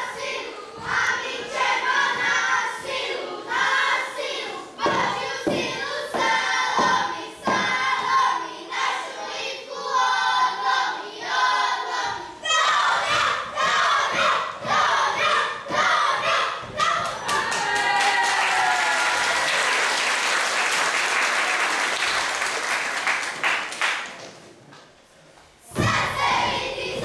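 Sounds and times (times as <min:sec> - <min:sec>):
children singing: 0:00.0 - 0:18.0, 0:25.7 - 0:27.0.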